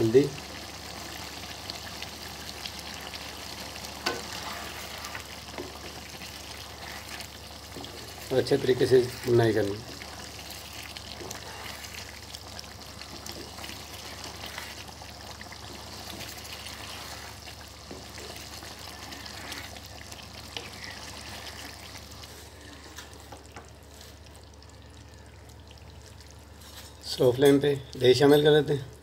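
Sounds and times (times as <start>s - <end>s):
chicken sizzling in hot oil: 0.0s - 25.2s
wooden spatula scraping wok: 4.0s - 12.3s, 13.0s - 23.2s.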